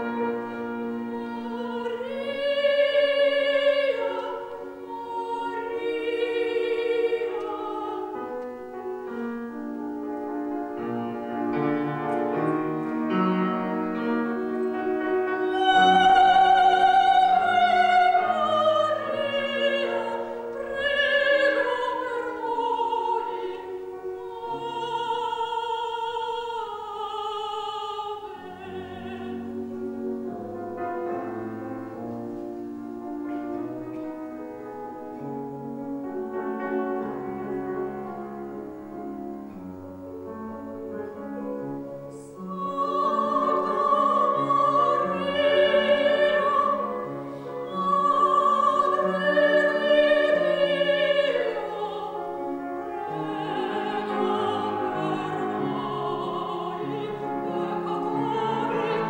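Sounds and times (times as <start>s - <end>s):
piano accompaniment: 0.0s - 59.0s
woman singing operatically: 0.8s - 8.3s, 15.4s - 29.8s, 42.1s - 59.0s.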